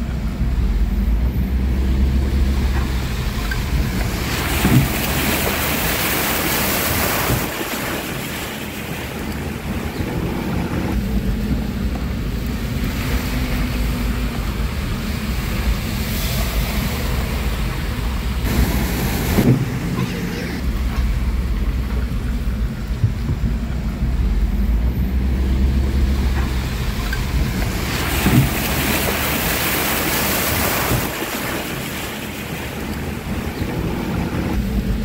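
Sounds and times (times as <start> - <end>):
traffic low rumble: 0.0 - 35.0
wind buffeting microphone: 1.4 - 20.0
rushing hiss of water: 1.7 - 10.9, 12.2 - 20.9, 25.2 - 34.8.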